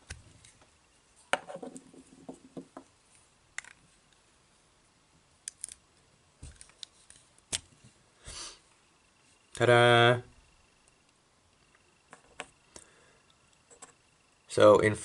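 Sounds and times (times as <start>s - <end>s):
toy parts clicking: 5.4s - 5.8s.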